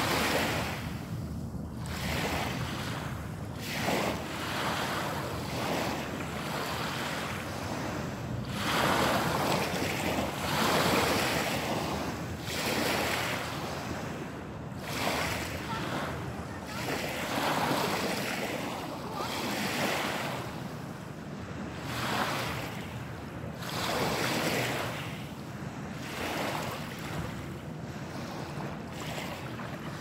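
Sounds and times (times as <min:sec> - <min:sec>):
waves washing on pebble beach: 0:01.8 - 0:14.2, 0:14.8 - 0:20.6, 0:25.9 - 0:27.2.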